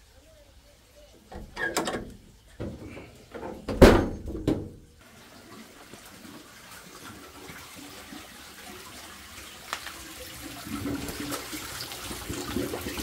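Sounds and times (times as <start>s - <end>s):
spring water running and splashing: 5.0s - 13.0s.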